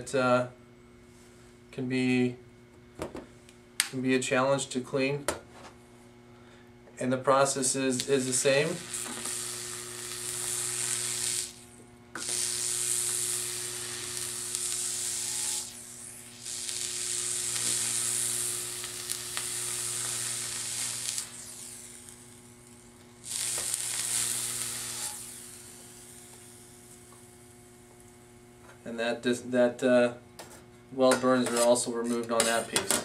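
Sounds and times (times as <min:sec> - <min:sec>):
steady low hum: 0:00.0 - 0:32.8
weld cleaner tip sizzling: 0:07.8 - 0:27.1.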